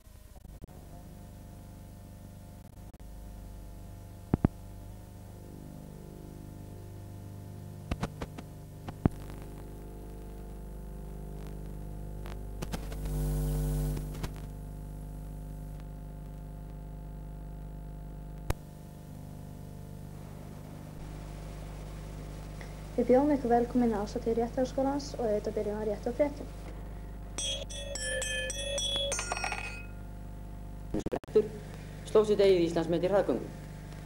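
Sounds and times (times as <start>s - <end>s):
electrical mains hum: 0.0s - 34.0s
sharp clicks and pops: 4.3s - 4.6s, 7.9s - 10.6s, 11.4s - 13.2s, 13.9s - 14.5s.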